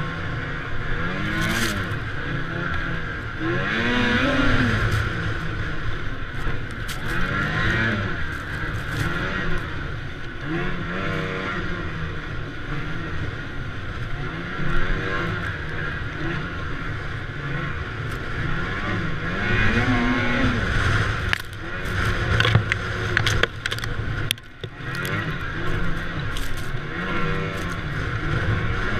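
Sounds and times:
snowmobile engine revving: 0:00.0 - 0:28.9
knocks and clatters: 0:21.2 - 0:26.7.

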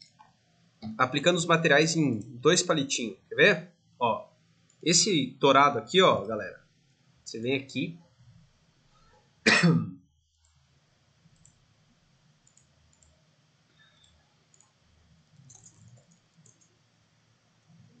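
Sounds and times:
computer mouse clicks: 0:11.4 - 0:11.6, 0:12.4 - 0:13.1, 0:13.7 - 0:14.8, 0:15.4 - 0:16.7.

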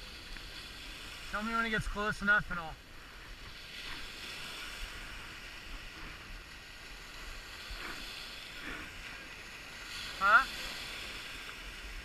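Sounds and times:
small waves washing on shore: 0:00.0 - 0:12.0
wind rumbling on microphone: 0:00.0 - 0:12.0.

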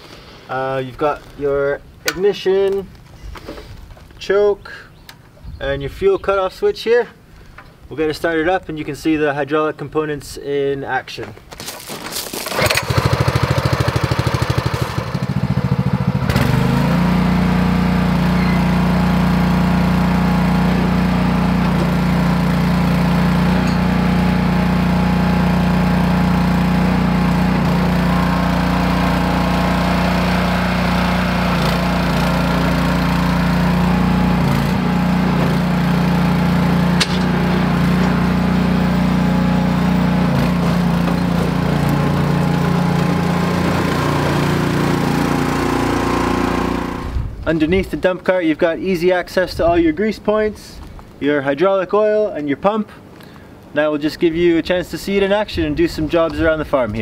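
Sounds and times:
small petrol engine running: 0:12.4 - 0:47.2.

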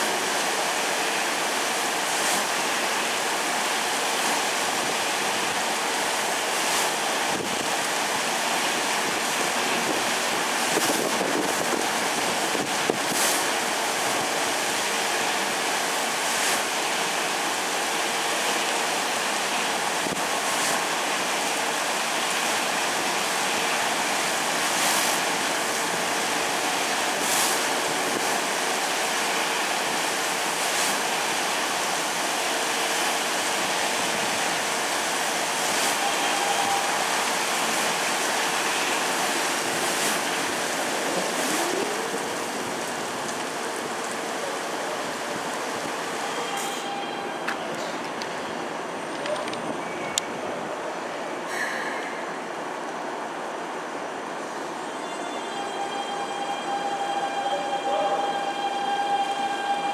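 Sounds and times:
water spray rushing: 0:00.0 - 0:47.4.

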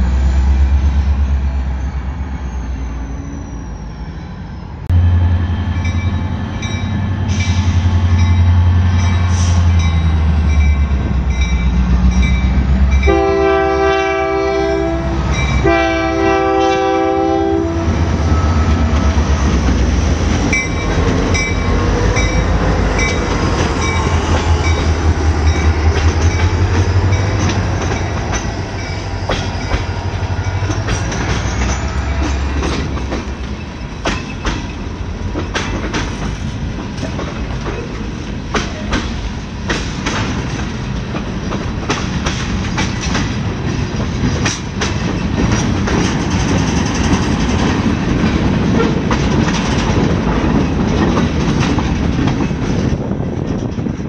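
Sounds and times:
locomotive engine rumble: 0:04.8 - 0:54.0
locomotive horn: 0:13.0 - 0:19.2
train wheels clacking: 0:18.3 - 0:54.0.

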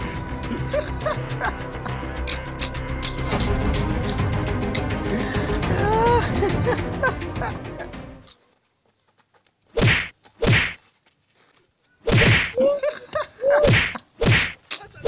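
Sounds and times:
punch and slap impacts: 0:09.8 - 0:10.8, 0:12.1 - 0:12.6, 0:13.6 - 0:14.6.

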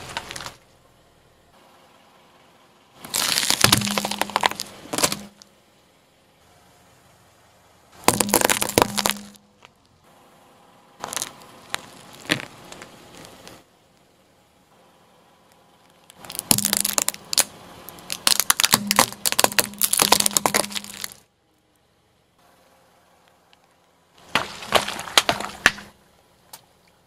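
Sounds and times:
tyre crushing brittle objects: 0:00.0 - 0:00.6, 0:03.0 - 0:05.5, 0:08.0 - 0:09.9, 0:11.0 - 0:13.6, 0:15.9 - 0:21.2, 0:24.2 - 0:26.0.

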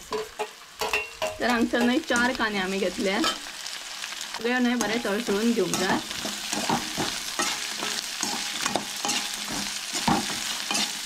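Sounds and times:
onions sizzling in oil: 0:00.0 - 0:11.0
utensil scraping pan: 0:04.8 - 0:11.0.

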